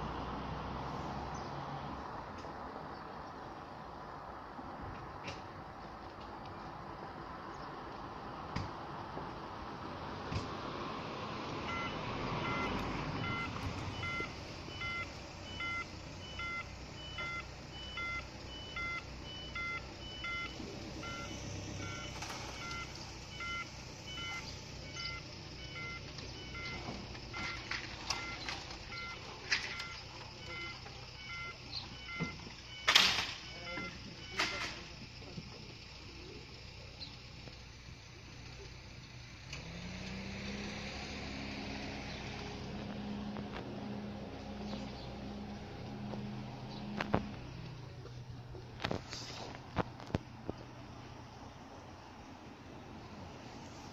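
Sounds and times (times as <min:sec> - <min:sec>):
short electronic alarm beeps: 0:11.7 - 0:34.8.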